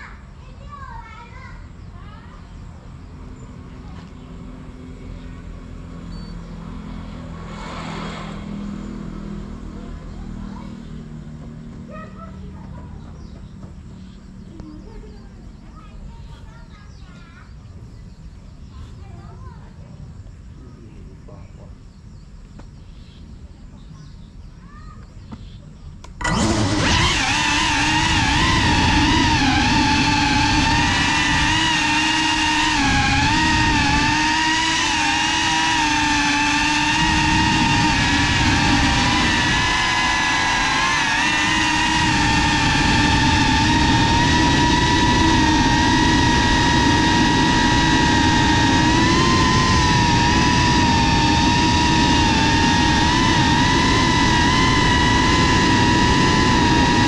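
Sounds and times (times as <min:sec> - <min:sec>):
drone motors whining: 0:02.0 - 0:16.5, 0:26.0 - 0:57.0.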